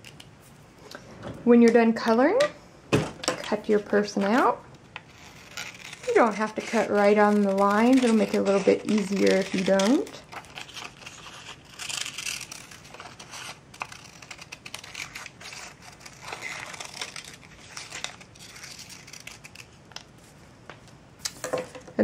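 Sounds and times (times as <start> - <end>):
scissors snipping paper: 3.5 - 19.8.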